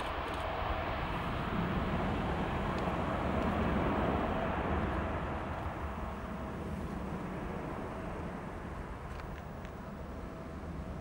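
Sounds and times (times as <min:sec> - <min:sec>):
jet engines at takeoff thrust: 0:00.0 - 0:11.0.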